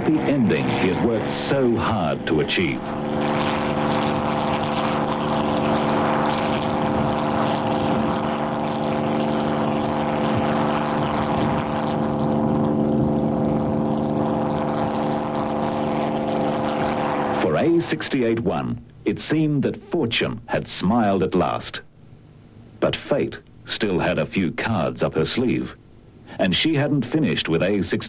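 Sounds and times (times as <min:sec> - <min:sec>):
propeller aircraft engine droning: 0:00.0 - 0:28.0.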